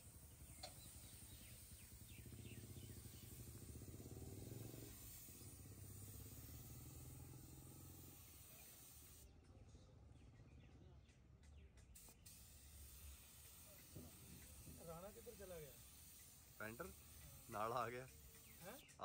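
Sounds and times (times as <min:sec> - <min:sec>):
paint spray gun hissing: 0:00.0 - 0:09.3, 0:12.0 - 0:19.0.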